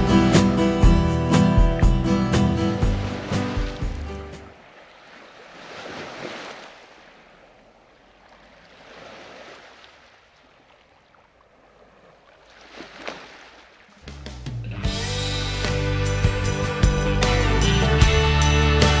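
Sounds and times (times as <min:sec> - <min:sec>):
music: 0:00.0 - 0:04.5, 0:14.0 - 0:19.0
waves washing: 0:00.0 - 0:14.6.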